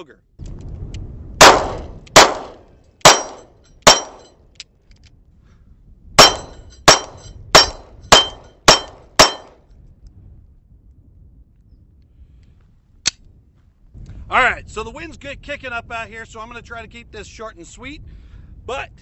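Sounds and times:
pistol shots: 0:01.4 - 0:04.3, 0:06.2 - 0:09.6
metallic ring: 0:06.2 - 0:09.5.

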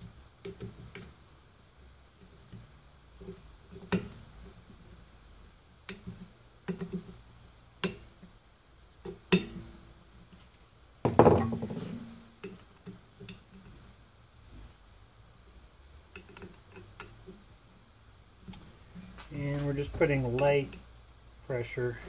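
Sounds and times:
metal clicks and taps of tools: 0:16.1 - 0:17.4.

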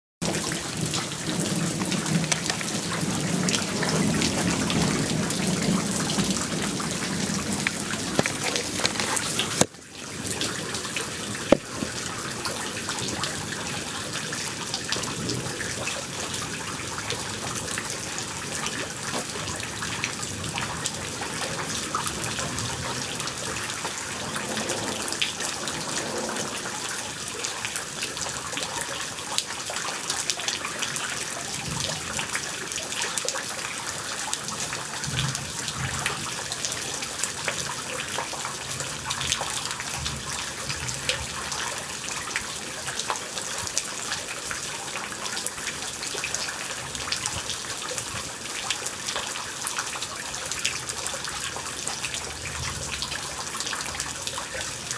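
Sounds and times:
low thunder rumble: 0:00.2 - 0:09.6, 0:19.5 - 0:27.1
heavy rain falling: 0:00.2 - 0:54.9.

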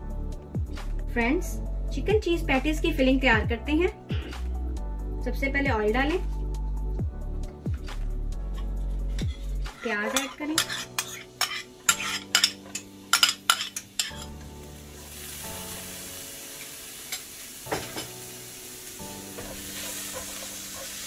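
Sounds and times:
metal spoon scraping pan: 0:08.5 - 0:14.4
onions sizzling in hot oil: 0:09.2 - 0:21.0.

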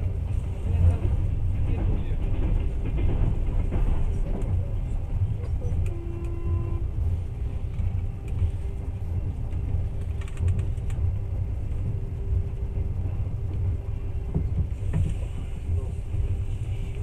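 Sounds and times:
train rumble inside carriage: 0:00.0 - 0:17.0
faint clicks: 0:09.5 - 0:11.0.

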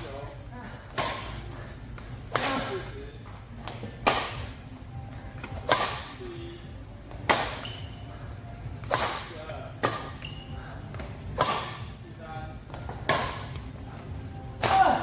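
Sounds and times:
racket hitting shuttlecock: 0:04.0 - 0:04.5, 0:05.6 - 0:06.2, 0:07.2 - 0:07.9, 0:08.8 - 0:10.4, 0:11.3 - 0:12.0, 0:13.0 - 0:13.6.

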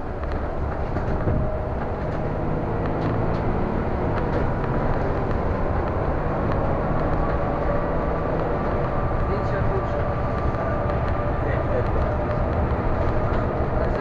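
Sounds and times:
bus engine drone: 0:00.0 - 0:14.0
road noise: 0:00.0 - 0:14.0.

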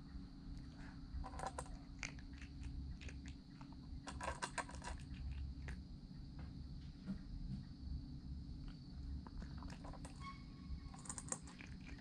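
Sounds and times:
cat chewing crunchily: 0:00.6 - 0:06.0, 0:08.6 - 0:10.1, 0:10.9 - 0:12.0.

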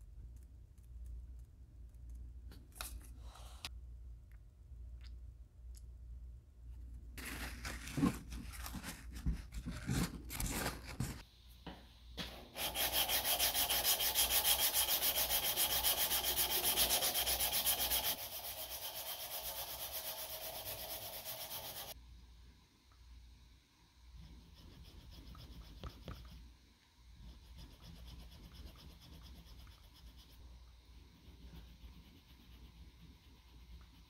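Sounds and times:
abrasive cloth sanding strokes: 0:12.6 - 0:22.0.

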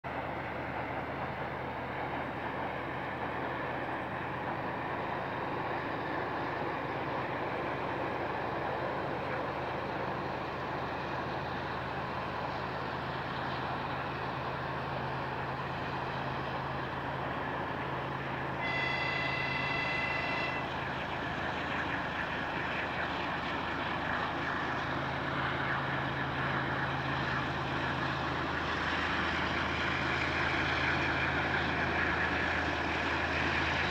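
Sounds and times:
diesel locomotive drone: 0:00.0 - 0:33.9
train horn: 0:18.6 - 0:20.9.

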